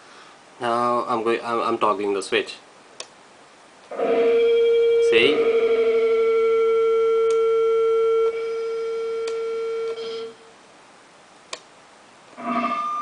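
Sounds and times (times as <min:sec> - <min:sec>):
sustained guitar note: 0:03.9 - 0:10.4.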